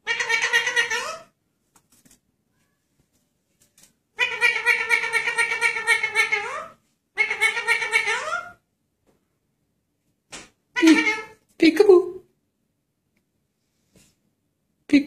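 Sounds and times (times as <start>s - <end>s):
parakeet pulsing calls: 0.0s - 1.3s, 4.2s - 8.6s, 10.8s - 11.4s.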